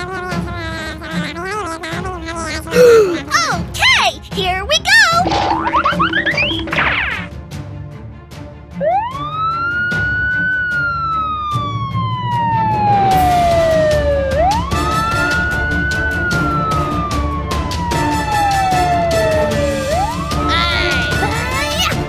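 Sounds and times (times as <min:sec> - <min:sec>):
wailing siren: 0:08.8 - 0:21.4.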